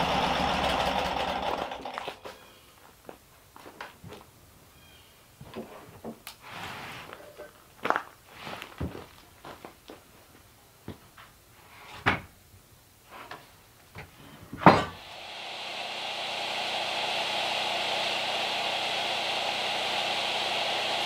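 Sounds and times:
electric power tool motor running: 0:00.0 - 0:02.1, 0:15.0 - 0:21.0.

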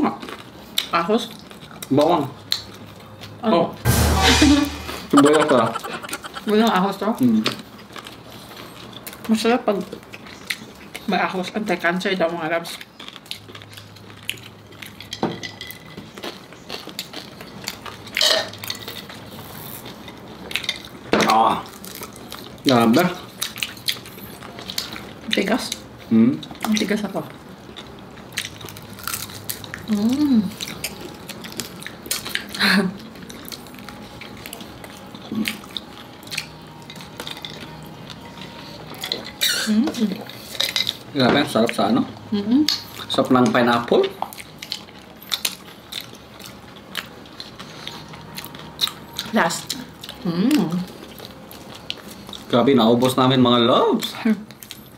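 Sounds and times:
short loud noise: 0:03.9 - 0:06.3
eating sounds: 0:16.2 - 0:41.9, 0:42.6 - 0:53.2.

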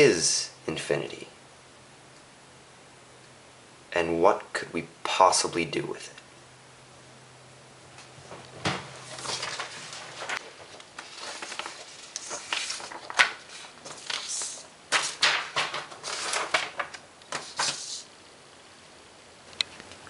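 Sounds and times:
paper rustling and shuffling: 0:08.2 - 0:18.1.

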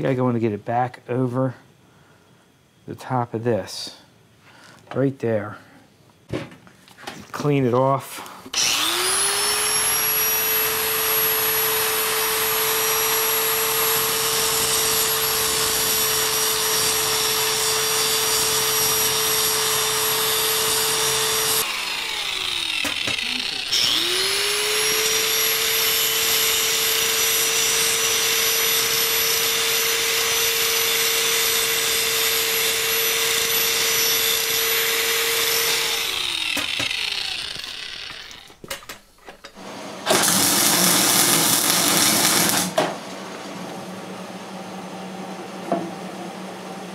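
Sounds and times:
angle grinder grinding steel: 0:08.6 - 0:38.7, 0:40.1 - 0:42.8.

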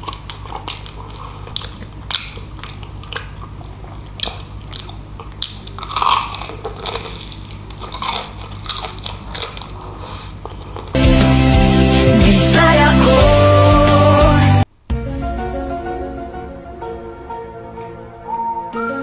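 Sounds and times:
crunchy chewing: 0:00.0 - 0:11.0
wet mouth clicks: 0:00.0 - 0:11.0.

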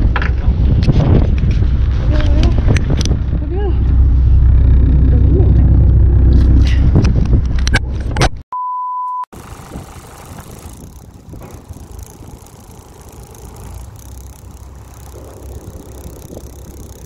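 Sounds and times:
wind: 0:00.0 - 0:08.4, 0:09.3 - 0:17.0
boat engine rumble: 0:02.2 - 0:07.7, 0:09.3 - 0:17.0
single-pitched beep: 0:08.5 - 0:09.3.

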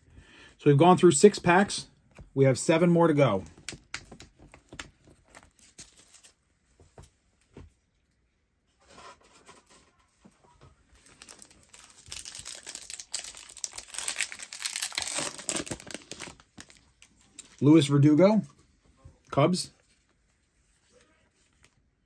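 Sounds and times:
foil pack crinkling and tearing: 0:11.0 - 0:17.6.

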